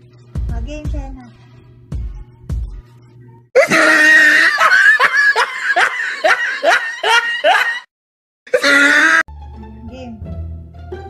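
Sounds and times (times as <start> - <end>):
loud rhythmic laughter: 3.6 - 7.9.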